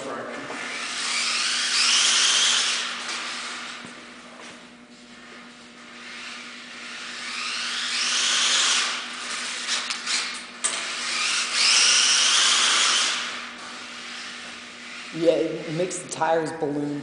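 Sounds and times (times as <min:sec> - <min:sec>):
rc car electric motor whine: 0:00.5 - 0:04.0, 0:05.9 - 0:15.7.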